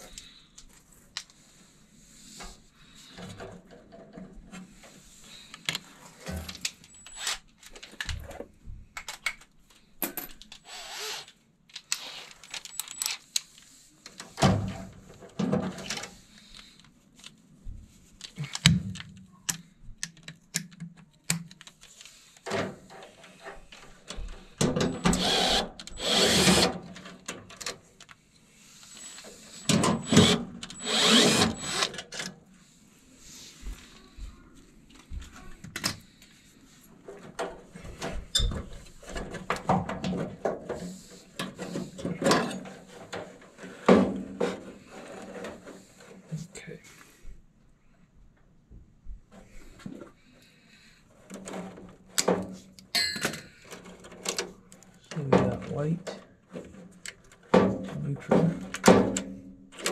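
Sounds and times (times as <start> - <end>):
cordless drill whirring: 10.7 - 11.3, 25.0 - 26.8, 29.0 - 32.0
tool handling clicks and clatter: 51.2 - 59.9.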